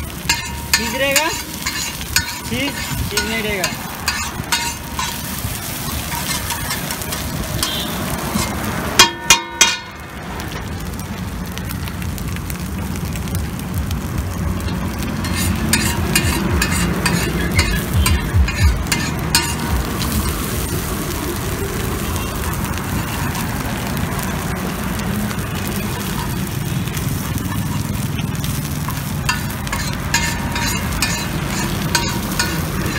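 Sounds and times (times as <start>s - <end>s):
chicken sizzling on a griddle: 0.0s - 32.9s
metal spatula scraping griddle: 0.2s - 9.8s, 14.6s - 20.7s, 22.8s - 23.6s, 25.6s - 32.9s.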